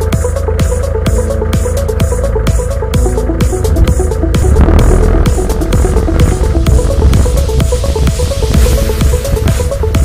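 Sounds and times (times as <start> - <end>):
repeating synth riff: 2.9 - 8.8
kick drum: 3.0 - 10.0.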